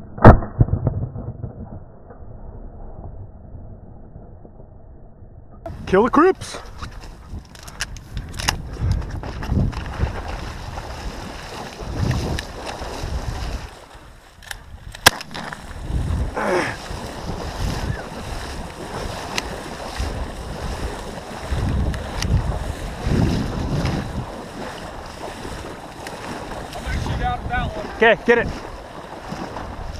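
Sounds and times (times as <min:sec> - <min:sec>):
shotgun shot: 0:00.2 - 0:01.8, 0:15.0 - 0:15.6
wind buffeting microphone: 0:05.7 - 0:29.9
water sloshing around boat: 0:06.6 - 0:14.4, 0:15.3 - 0:29.9.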